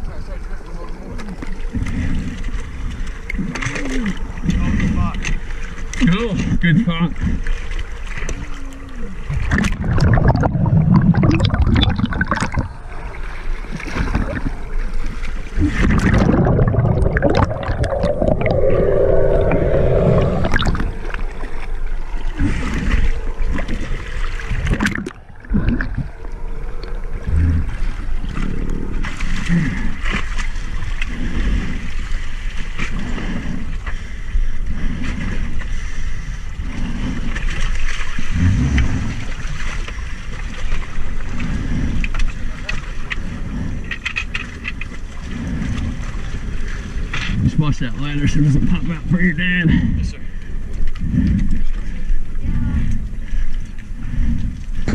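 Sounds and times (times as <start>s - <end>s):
water sloshing and splashing: 0.0s - 54.9s
muffled underwater gurgling: 8.4s - 13.2s, 13.8s - 30.0s.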